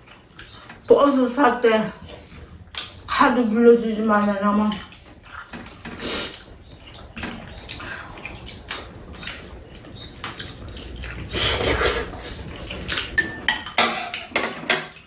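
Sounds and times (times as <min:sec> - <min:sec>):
people slurping noodles: 0:11.0 - 0:13.2.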